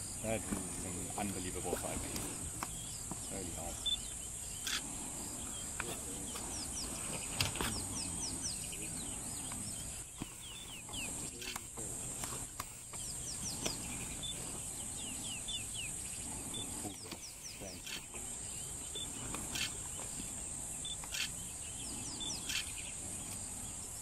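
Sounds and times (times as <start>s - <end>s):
high insect buzz: 0.0s - 24.0s
hyenas grunting: 4.6s - 23.8s.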